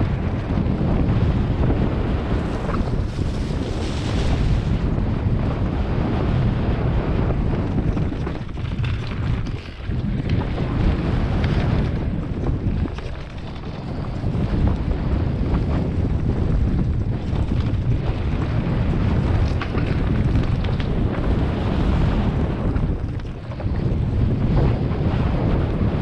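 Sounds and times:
tyres rumbling on dirt track: 0.0 - 26.0
wind rushing over microphone: 0.0 - 26.0.

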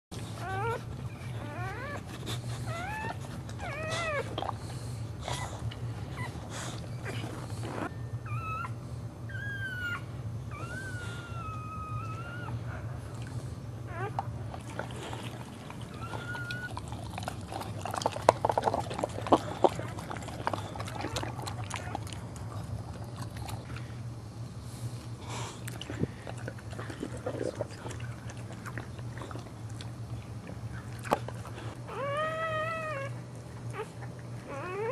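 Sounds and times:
steady low hum: 0.1 - 34.9
dog whining: 0.2 - 4.6, 5.2 - 13.0, 13.8 - 23.8, 31.8 - 34.9.

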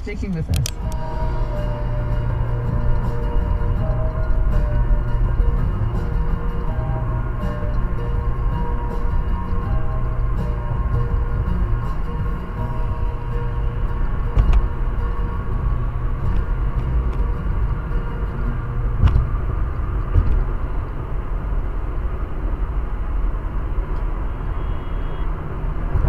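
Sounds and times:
car road and engine rumble: 0.0 - 26.0.

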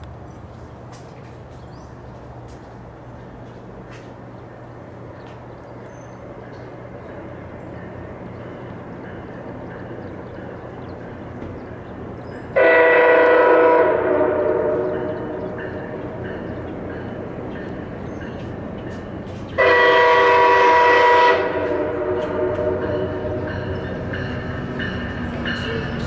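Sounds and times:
train rumbling: 0.0 - 26.0
train horn chord: 12.5 - 16.6, 19.6 - 24.6.

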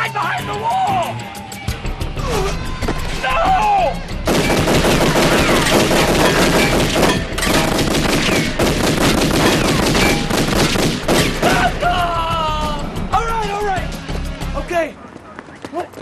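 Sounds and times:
pistol gunfire: 4.3 - 11.4.

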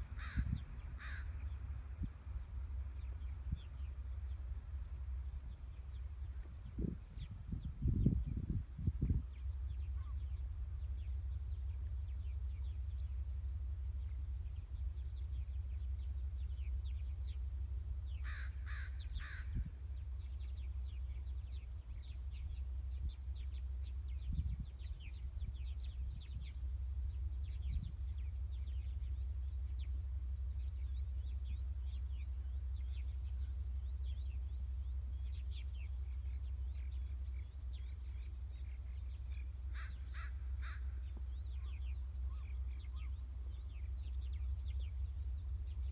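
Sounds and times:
low rumble: 0.0 - 45.9
crow cawing: 0.2 - 1.4, 18.2 - 19.6, 39.7 - 41.0.

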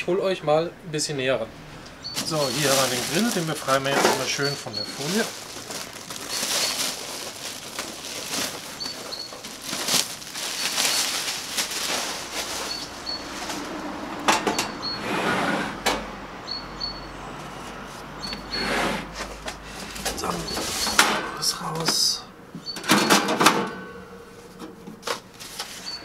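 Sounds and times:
plastic film crinkling: 2.1 - 13.8, 19.9 - 21.0.

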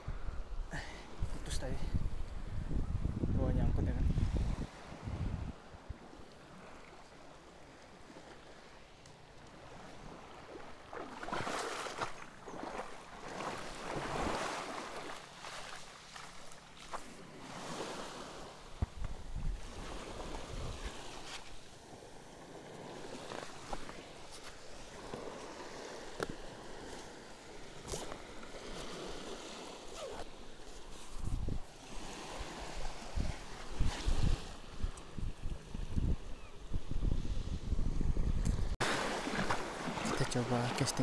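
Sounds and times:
wind on microphone: 0.0 - 6.1, 17.6 - 21.4, 30.9 - 39.6
sea waves washing onto shore: 9.5 - 35.9, 38.5 - 41.0.

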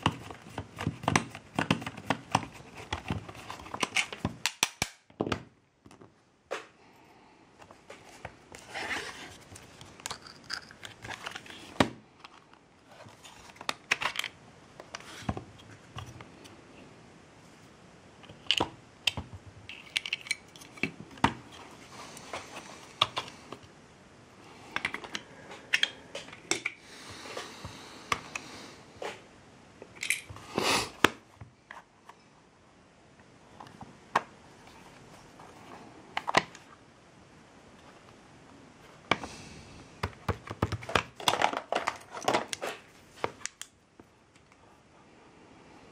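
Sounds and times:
small hard parts clicking and tapping: 9.8 - 11.4, 18.2 - 21.3.

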